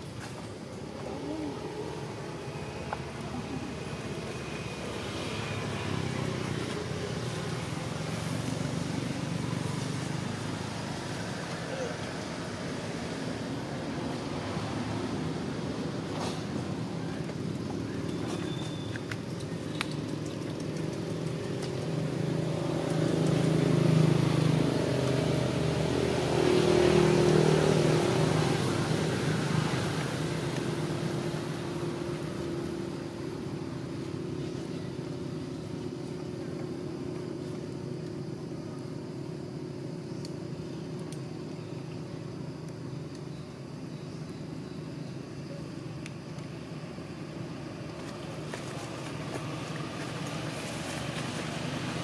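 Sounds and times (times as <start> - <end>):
vehicle engine passing by: 19.8 - 33.5, 47.9 - 52.0.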